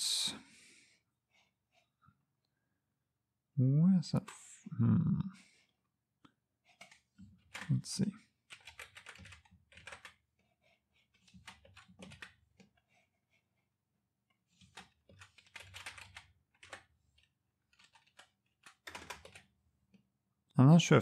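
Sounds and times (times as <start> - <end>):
typing on keyboard: 6.7 - 10.2, 11.0 - 12.8, 14.5 - 19.6.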